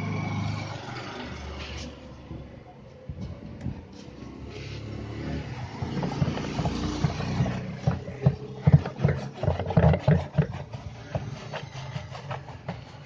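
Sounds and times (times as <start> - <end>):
hand scrubbing plastic tub: 5.8 - 13.0.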